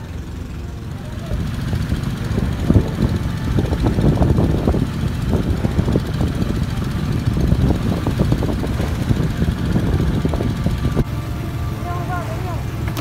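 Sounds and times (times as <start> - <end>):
boat engine rumbling: 0.0 - 13.0
wind noise on microphone: 1.4 - 11.4.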